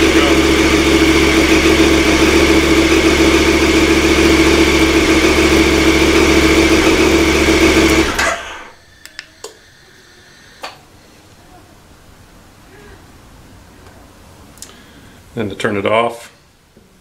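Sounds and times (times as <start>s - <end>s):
motorcycle engine idling: 0.0s - 8.8s
engine switched off: 0.0s - 9.6s.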